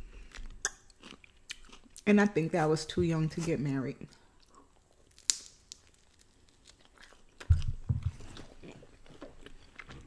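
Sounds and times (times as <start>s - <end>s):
person chewing food: 0.0s - 2.0s, 4.1s - 10.0s.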